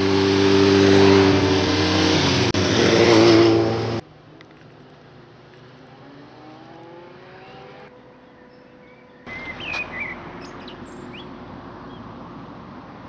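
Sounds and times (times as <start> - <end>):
distant vehicle accelerating: 0.0 - 4.0, 5.7 - 8.1
steady outdoor noise: 0.0 - 13.0
small birds chirping: 7.4 - 12.1.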